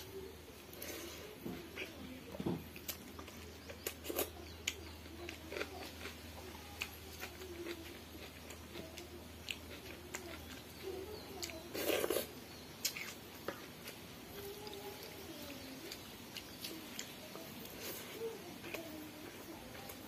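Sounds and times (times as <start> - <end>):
chewing and mouth smacks: 2.7 - 10.8, 11.4 - 14.0, 15.8 - 20.0.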